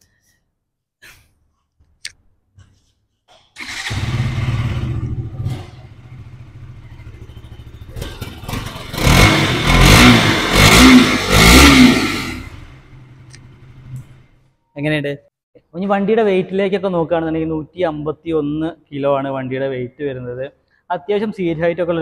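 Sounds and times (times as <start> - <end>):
motorcycle engine idling and revving: 3.6 - 14.4.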